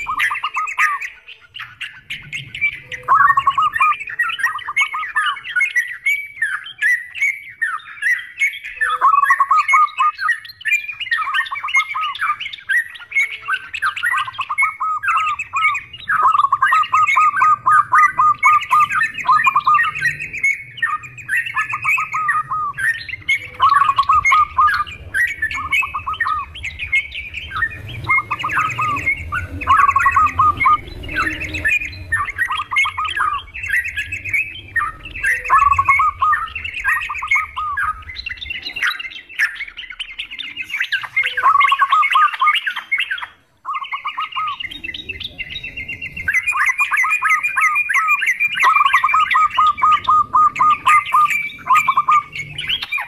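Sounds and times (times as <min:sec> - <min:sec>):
birds chattering calls: 0:00.0 - 0:53.0.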